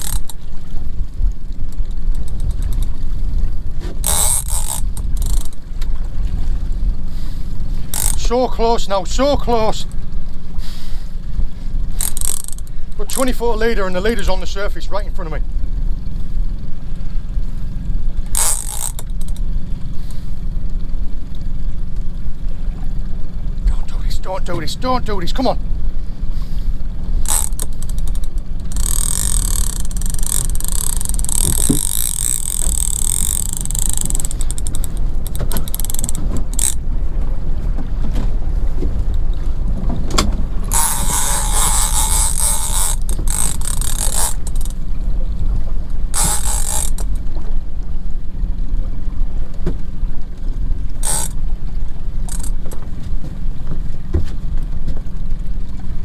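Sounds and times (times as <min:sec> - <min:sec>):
fishing reel whirring: 0:00.0 - 0:01.0, 0:01.7 - 0:03.2, 0:03.8 - 0:05.7, 0:07.6 - 0:09.0, 0:11.8 - 0:14.6, 0:18.1 - 0:20.2, 0:26.3 - 0:36.9, 0:40.6 - 0:44.8, 0:46.1 - 0:47.2, 0:51.0 - 0:51.6, 0:52.2 - 0:52.6
steady low rumble: 0:00.0 - 0:56.0.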